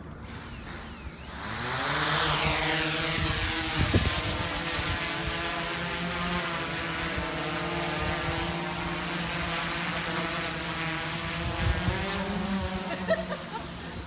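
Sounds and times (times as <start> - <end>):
drone propellers buzzing: 0.0 - 14.0.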